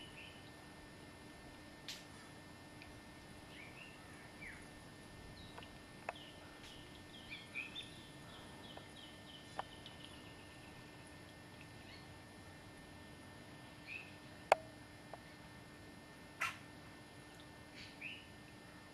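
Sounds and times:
faint steady hum: 0.0 - 18.9
small birds chirping: 3.5 - 4.7, 5.4 - 10.8, 11.7 - 12.2, 13.7 - 14.2, 17.7 - 18.3.

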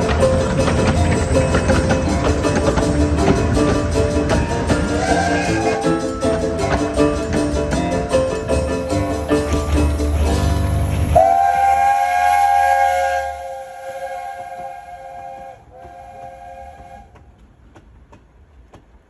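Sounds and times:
train wheels clicking on rail joints: 0.0 - 19.0
steam locomotive whistle: 4.8 - 6.2, 10.8 - 17.2.

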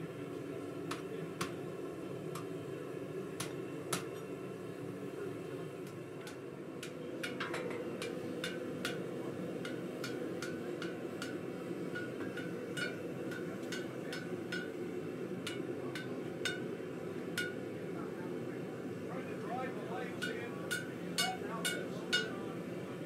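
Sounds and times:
hammer striking hot iron: 0.9 - 1.7, 3.4 - 4.3, 5.8 - 17.7, 20.2 - 22.4.

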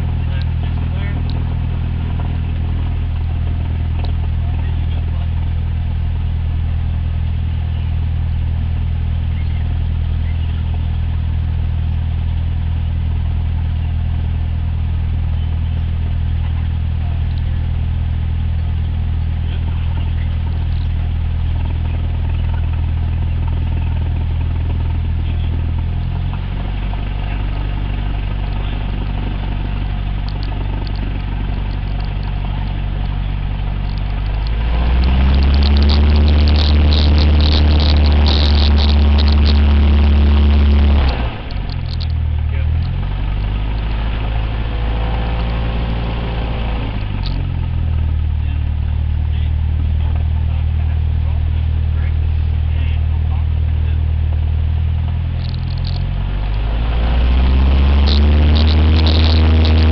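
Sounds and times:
propeller aircraft engine droning: 0.0 - 59.9.

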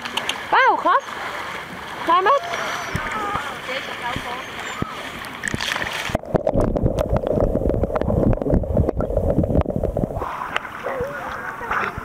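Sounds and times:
water splashing: 0.0 - 12.0
muffled underwater rumble: 4.1 - 12.0.

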